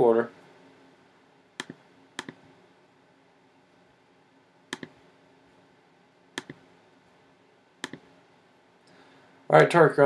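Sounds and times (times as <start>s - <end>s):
computer mouse button clicks: 1.6s - 2.4s, 4.7s - 5.0s, 6.4s - 6.6s, 7.8s - 8.1s.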